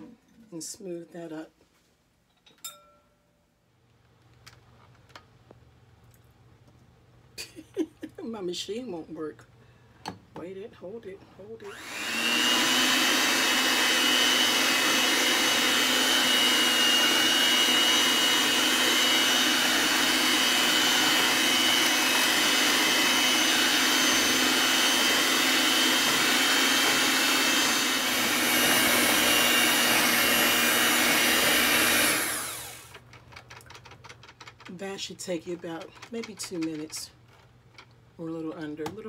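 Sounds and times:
electric hand mixer whine: 0:11.6 - 0:33.0.

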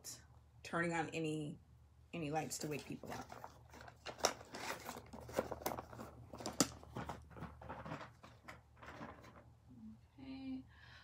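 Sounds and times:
packaging crinkling and rustling: 0:02.6 - 0:09.5.

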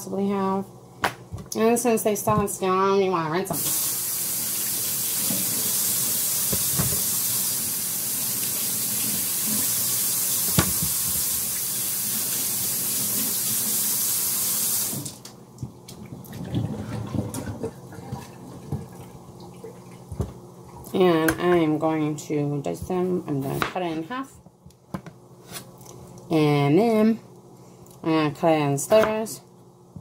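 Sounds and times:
kitchen tap running: 0:03.5 - 0:15.3.

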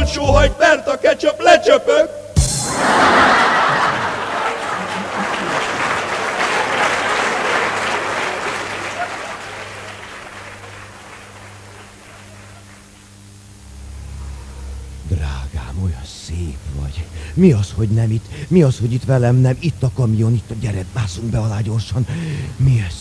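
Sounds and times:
faint low hum: 0:00.0 - 0:23.0
audience applauding: 0:02.7 - 0:13.2.

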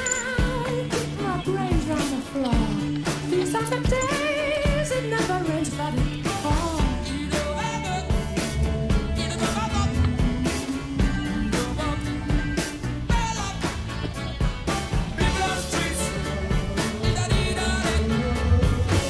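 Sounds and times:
pop-rock song with singing: 0:00.0 - 0:19.0.

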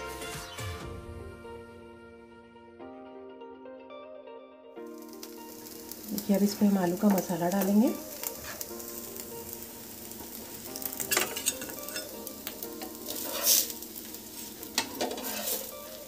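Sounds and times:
batter sizzling on griddle: 0:04.9 - 0:16.0
metal spatula scraping: 0:08.3 - 0:08.7, 0:11.0 - 0:16.0.

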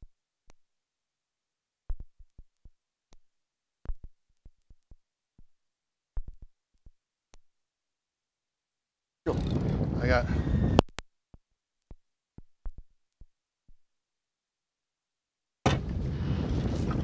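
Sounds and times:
thumps on a fibreglass boat: 0:15.6 - 0:16.0.

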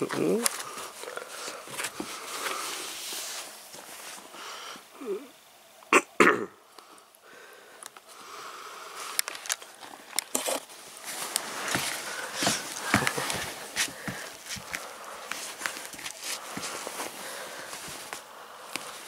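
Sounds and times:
shoe clicks and rustles: 0:00.0 - 0:04.4, 0:09.0 - 0:19.0.

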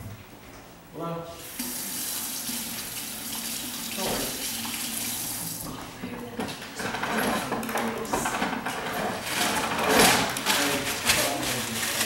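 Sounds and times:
pencils and papers rustling: 0:06.4 - 0:12.0.

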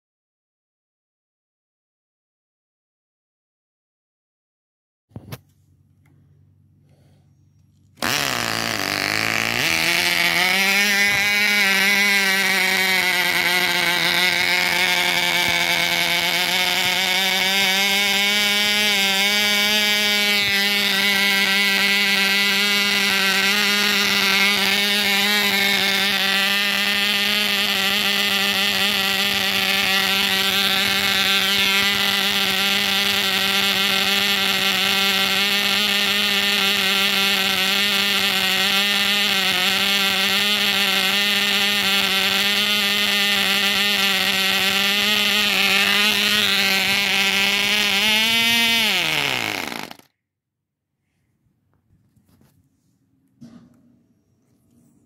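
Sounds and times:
model engine high buzz: 0:06.8 - 0:50.1.

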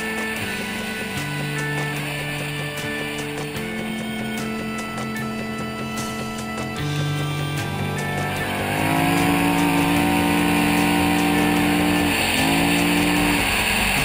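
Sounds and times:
atv engine at high revs: 0:07.3 - 0:14.0.

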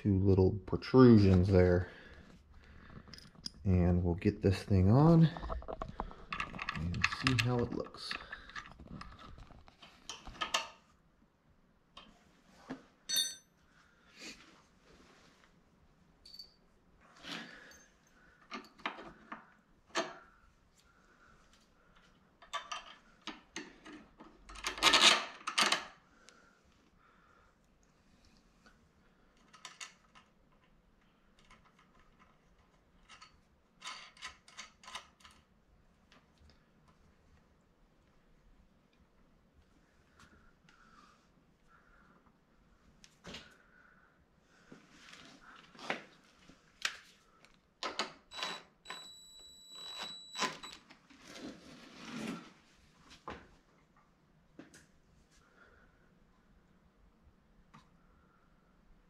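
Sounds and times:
tools and parts clicking: 0:05.4 - 0:10.8, 0:22.4 - 0:26.0, 0:29.4 - 0:30.8, 0:31.4 - 0:35.5.

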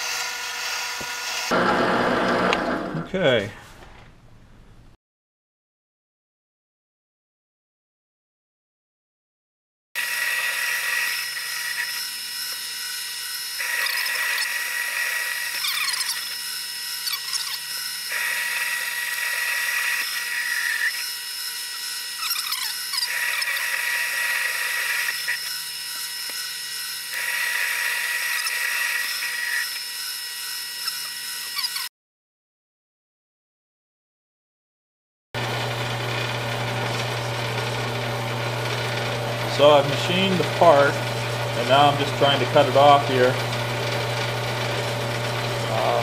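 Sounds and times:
lathe motor whining: 0:00.0 - 0:03.2, 0:10.0 - 0:31.9, 0:35.4 - 0:46.0
cutting tool on steel: 0:10.0 - 0:31.9, 0:35.4 - 0:46.0
short squeals: 0:13.6 - 0:16.4, 0:17.0 - 0:21.1, 0:22.2 - 0:24.1, 0:30.8 - 0:31.9.

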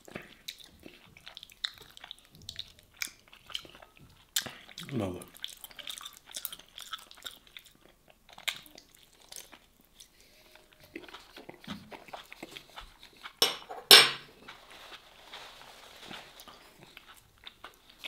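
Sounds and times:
man biting and chewing: 0:00.0 - 0:10.1, 0:10.8 - 0:13.4, 0:16.4 - 0:18.0.

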